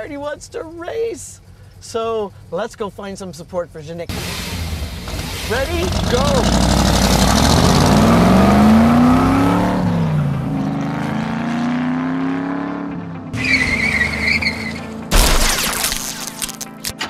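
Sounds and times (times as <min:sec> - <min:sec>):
car engines accelerating hard: 0:04.1 - 0:15.2
wavering tire squeal: 0:13.3 - 0:15.1.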